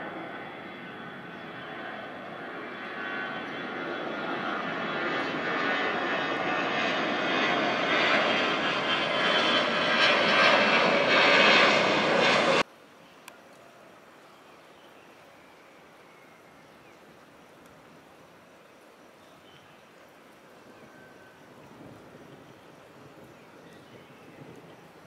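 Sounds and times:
jet airliner engines roaring: 0.0 - 12.7.

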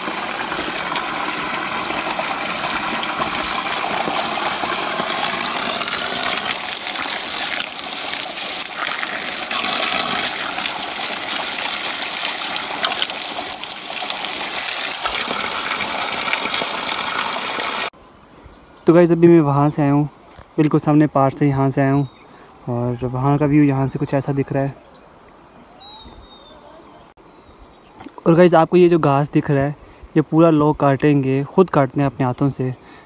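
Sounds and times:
water splashing onto stones: 0.0 - 17.9.

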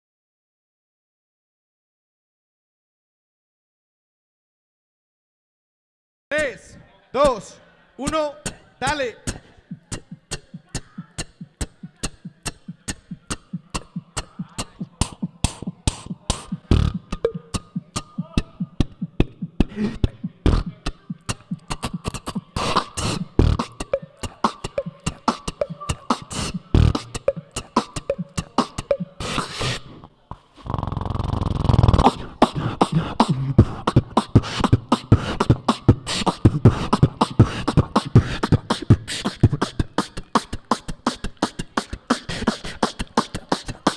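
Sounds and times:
beatboxing into microphone: 6.4 - 43.9
held low vocal bass sound: 9.2 - 30.0, 31.6 - 43.9.

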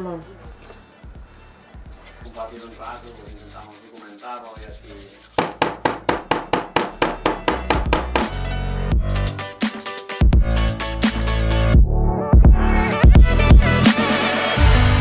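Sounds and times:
metal mallet pounding on wooden board: 5.4 - 8.5.

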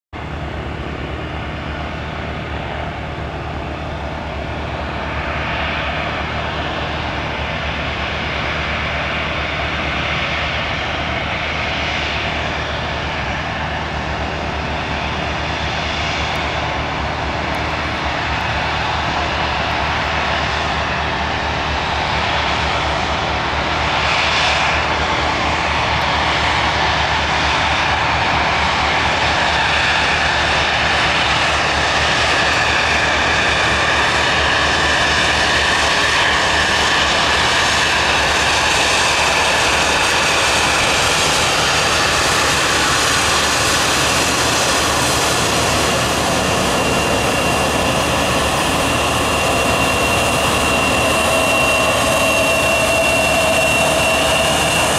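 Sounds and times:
jet engine roar: 0.2 - 54.9
high fan whine: 35.8 - 54.9.

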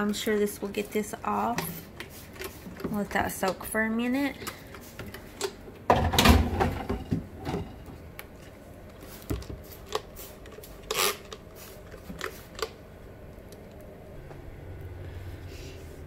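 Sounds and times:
plastic drawers clattering: 5.9 - 7.9
spray bottle squirts: 9.1 - 12.7.

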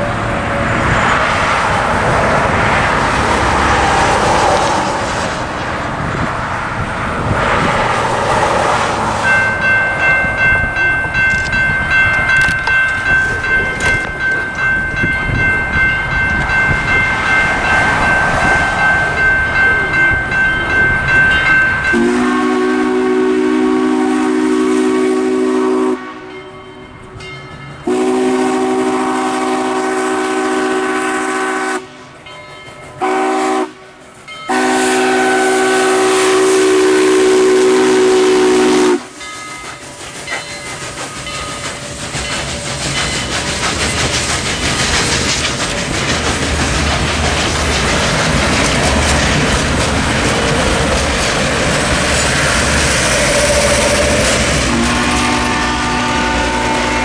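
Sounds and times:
road traffic passing: 0.0 - 57.0
crossing warning bell ringing: 9.1 - 24.0, 24.9 - 29.0, 31.8 - 44.2, 47.7 - 57.0
train horn blast: 21.9 - 26.7, 27.8 - 32.1, 33.0 - 39.2, 52.4 - 57.0.

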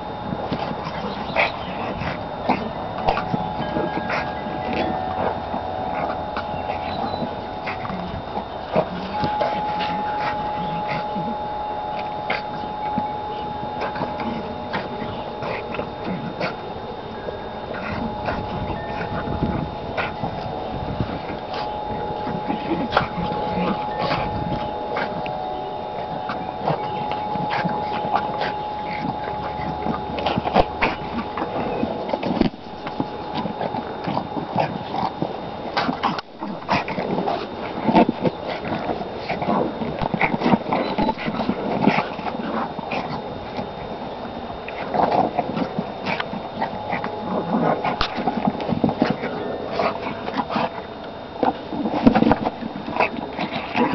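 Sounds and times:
thin steady hum: 0.0 - 53.9
dog snuffling: 0.3 - 43.9.

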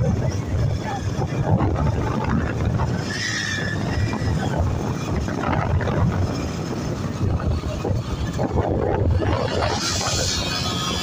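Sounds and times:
motorcycle engine rumbling: 0.0 - 11.0
wind buffeting microphone: 0.0 - 11.0.

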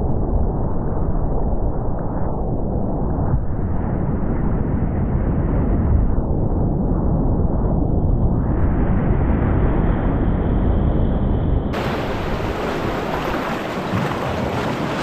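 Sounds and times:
waves splashing over canoe bow: 11.8 - 15.0
whitewater rapids rushing: 11.8 - 15.0.

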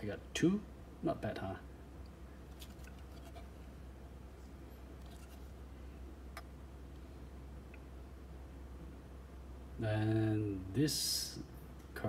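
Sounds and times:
steady low hum: 0.0 - 12.0
trading cards rubbing: 5.0 - 5.6.

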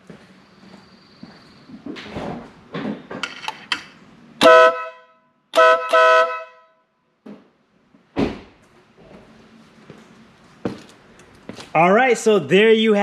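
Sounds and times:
electric air horn blasts: 4.4 - 6.9
short thump: 8.1 - 8.6.

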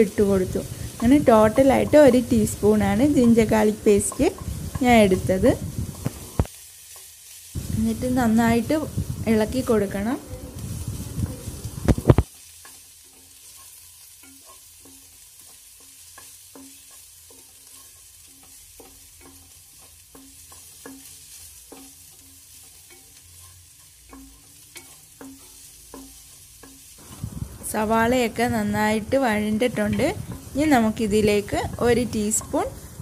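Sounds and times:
onions sizzling in oil: 0.0 - 33.0
spatula scraping a pan: 10.6 - 27.2.

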